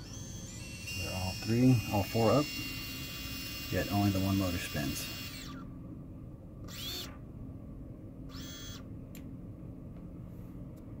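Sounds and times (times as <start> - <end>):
drone motor whirring: 0.0 - 5.7, 6.7 - 7.2, 8.3 - 8.9.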